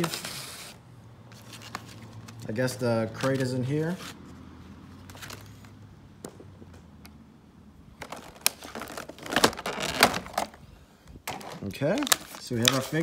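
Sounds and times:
plastic packaging crinkling: 8.0 - 10.6, 11.2 - 13.0.

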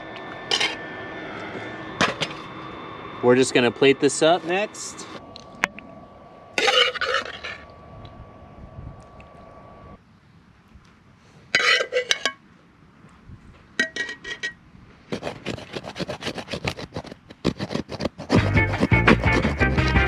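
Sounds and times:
faint steady hum: 0.0 - 17.1
music: 18.3 - 20.0.

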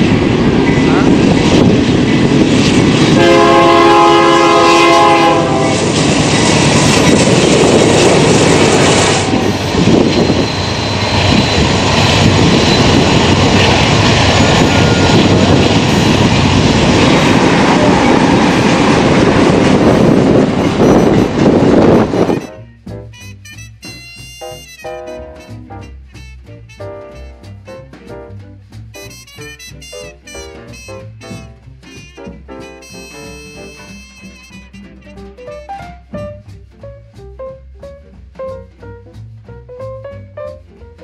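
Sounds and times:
freight train rumbling past: 0.0 - 41.0
locomotive air horn chord: 3.1 - 6.0, 20.5 - 27.6, 29.0 - 35.8.

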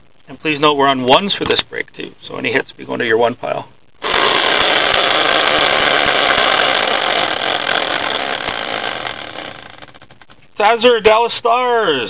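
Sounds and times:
spinning wheel whirring: 4.0 - 10.2.

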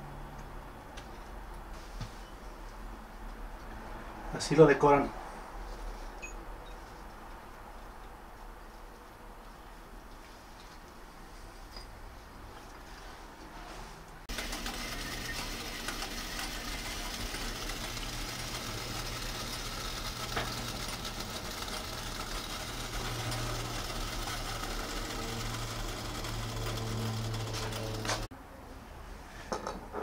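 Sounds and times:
small motor humming: 14.3 - 28.3.

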